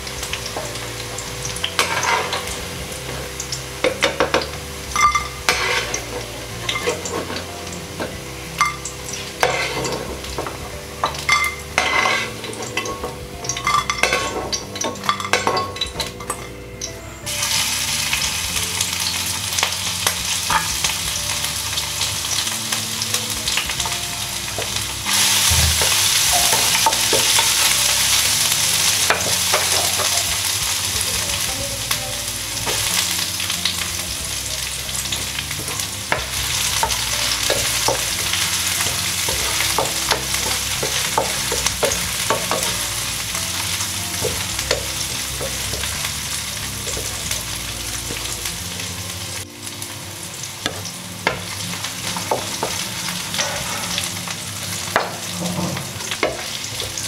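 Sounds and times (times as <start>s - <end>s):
garlic sizzling in oil: 0.0s - 57.0s.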